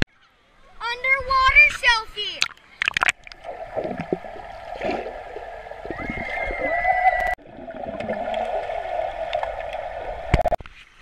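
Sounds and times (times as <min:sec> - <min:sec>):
underwater bubbling and gurgling: 0:02.4 - 0:10.6.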